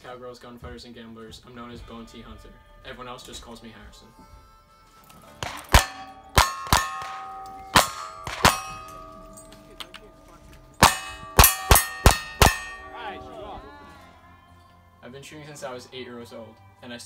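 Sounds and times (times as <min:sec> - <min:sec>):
steel plate targets clanging: 0:05.3 - 0:13.6
gunshots: 0:05.4 - 0:09.2, 0:10.8 - 0:13.2.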